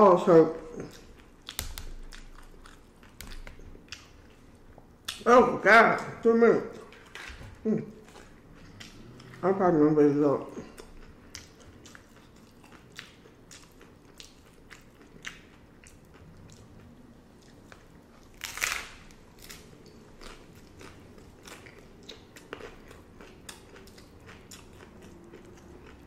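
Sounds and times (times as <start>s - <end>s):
crunchy tacos bitten and chewed: 0.6s - 5.2s, 6.7s - 9.4s, 10.5s - 26.0s.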